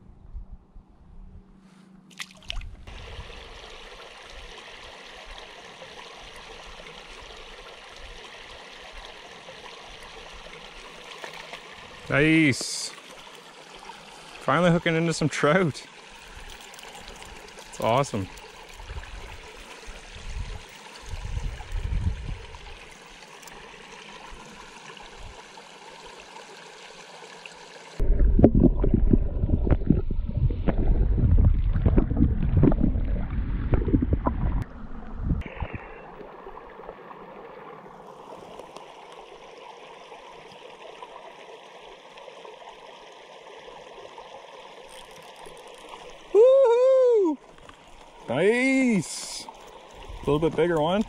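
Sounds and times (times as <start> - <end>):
creek trickling: 2.1 - 28.1, 28.9 - 51.0
low underwater churning gurgle: 27.9 - 46.3.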